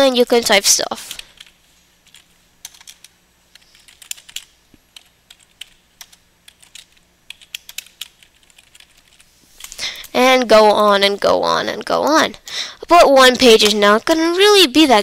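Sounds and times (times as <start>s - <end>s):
computer keyboard typing: 1.1s - 9.8s.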